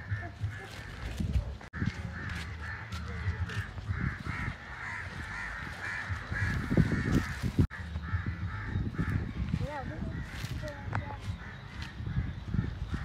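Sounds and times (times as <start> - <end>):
birds cawing: 0.0 - 13.0.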